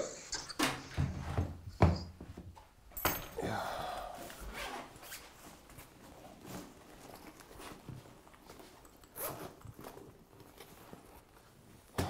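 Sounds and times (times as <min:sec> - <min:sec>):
fabric bag rustling and clicking: 0:04.9 - 0:12.0.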